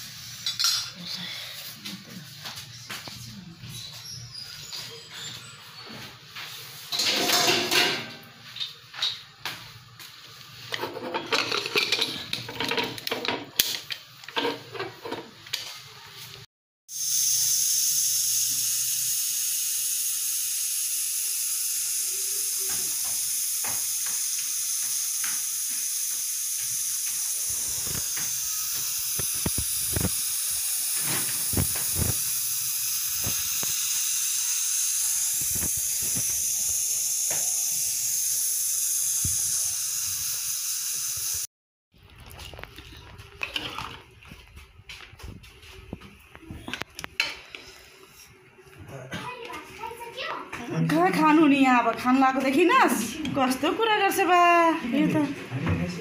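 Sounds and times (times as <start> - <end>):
pot and lid clattering: 6.9 - 8.3, 10.7 - 15.3
pressure cooker hissing steam: 16.9 - 41.5.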